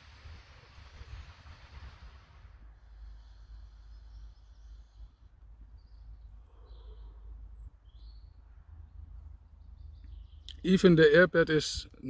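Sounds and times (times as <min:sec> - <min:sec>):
wind rumble on microphone: 0:00.0 - 0:02.9
birds chirping: 0:02.6 - 0:12.0
breath through a vaporizer: 0:02.8 - 0:05.1.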